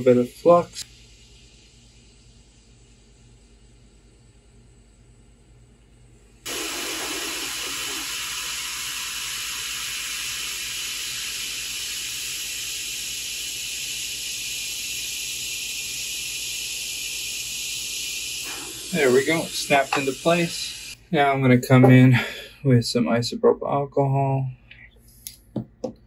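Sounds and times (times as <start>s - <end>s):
hot air station hissing: 0.0s - 4.2s, 6.4s - 22.7s.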